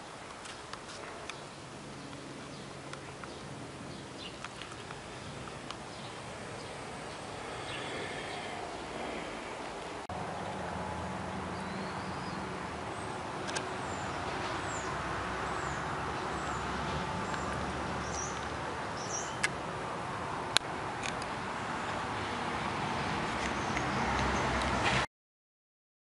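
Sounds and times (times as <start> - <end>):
sharp clicks: 13.4 - 13.7
bird chirps: 13.8 - 19.5.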